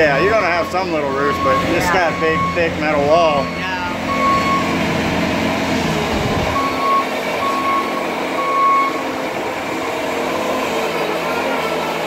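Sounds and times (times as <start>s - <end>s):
diesel engine running: 0.0s - 12.0s
backup alarm beeping: 0.1s - 4.8s, 6.5s - 9.1s.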